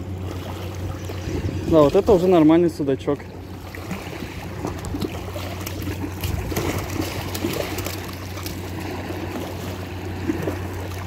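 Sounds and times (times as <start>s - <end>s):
water lapping and trickling: 0.0s - 11.0s.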